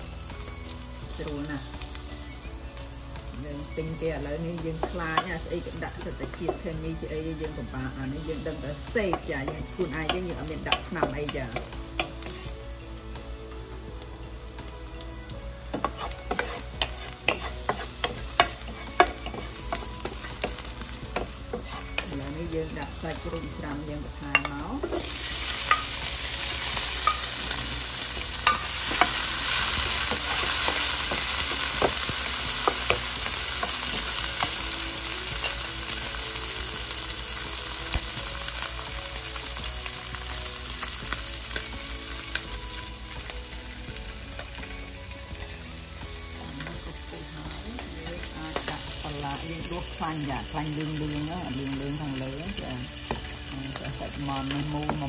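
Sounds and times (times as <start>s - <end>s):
loud frying sizzle: 0.0s - 55.0s
utensil scraping pan: 15.7s - 22.3s.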